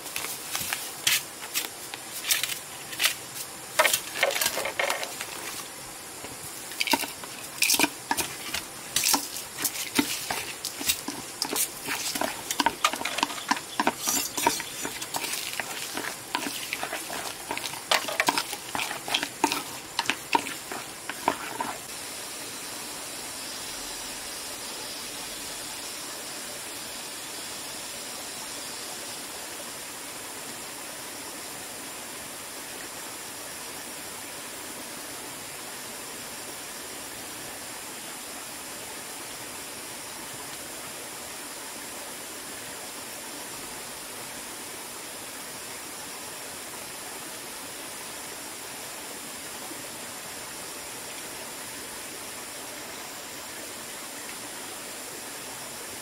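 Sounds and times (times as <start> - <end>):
background hiss: 0.0 - 56.0
chopsticks scraping metal bowl: 3.8 - 5.6, 6.7 - 21.9.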